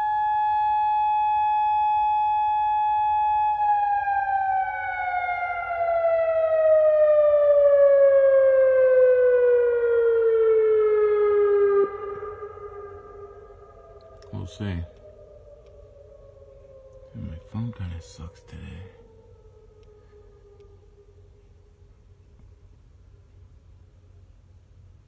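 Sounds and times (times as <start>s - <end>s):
warning siren: 0.0s - 22.4s.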